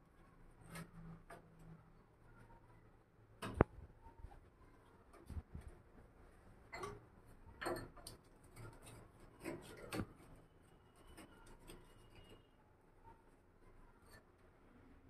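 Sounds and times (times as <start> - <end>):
plastic pipe fitting scraping and knocking: 6.8 - 12.5.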